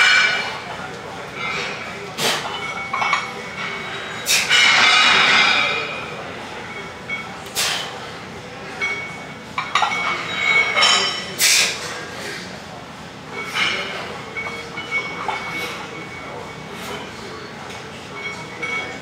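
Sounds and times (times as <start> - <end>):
metallic ringing of plates: 1.4 - 7.4, 8.7 - 11.3, 13.3 - 19.0.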